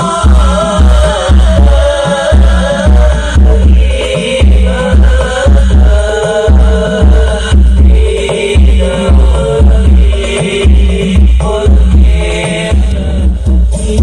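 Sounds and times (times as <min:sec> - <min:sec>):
deep bass beat: 0:00.0 - 0:14.0
loud devotional music through speakers: 0:00.0 - 0:14.0.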